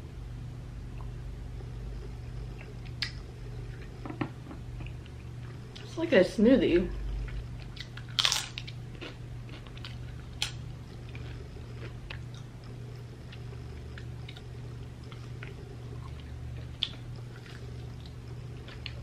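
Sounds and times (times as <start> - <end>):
low steady hum: 0.0 - 19.0
chewing crisp food: 7.0 - 19.0.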